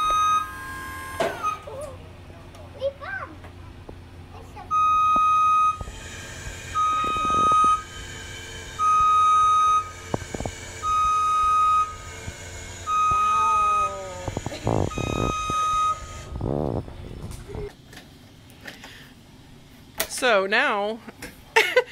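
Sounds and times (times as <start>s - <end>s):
lift motion alarm beeping: 0.0s - 1.7s, 4.7s - 16.7s
low hum: 3.4s - 19.8s.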